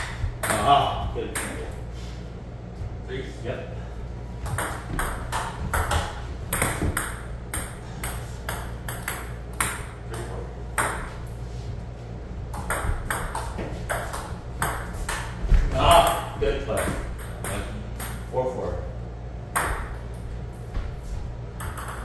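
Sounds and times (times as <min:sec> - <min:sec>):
table tennis ball clicking: 0:21.6 - 0:22.0.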